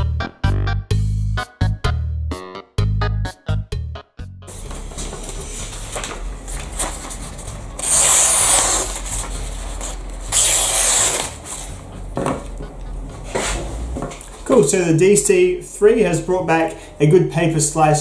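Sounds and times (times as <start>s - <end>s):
paper rustling: 4.5s - 11.8s
knife slicing paper: 7.8s - 11.6s.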